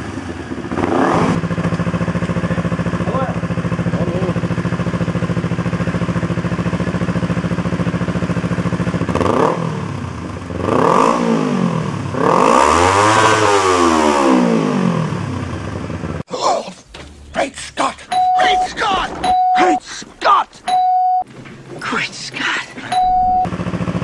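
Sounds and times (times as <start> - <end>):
motorcycle engine idling and revving: 0.0 - 16.3, 23.0 - 24.0.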